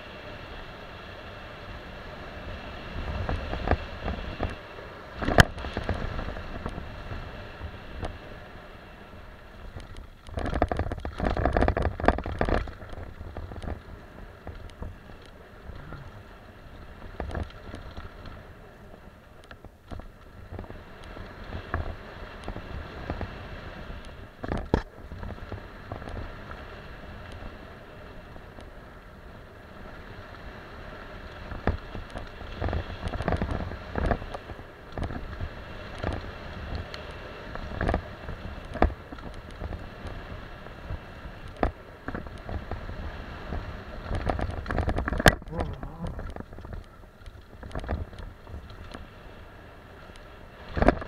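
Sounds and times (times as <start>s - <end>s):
tyres rumbling over dirt: 1.2s - 51.0s
wind buffeting microphone: 1.8s - 51.0s
bike knocks and rattles: 9.7s - 13.8s, 24.4s - 26.2s, 44.0s - 49.0s.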